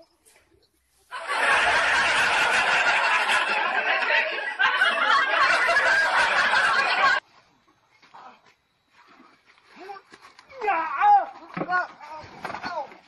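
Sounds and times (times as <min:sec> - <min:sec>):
many people laughing: 0:01.1 - 0:07.2.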